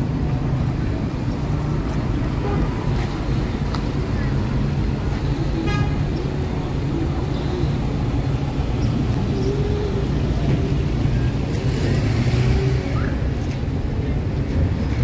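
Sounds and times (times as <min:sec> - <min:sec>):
low hum of car engines: 0:00.0 - 0:15.0.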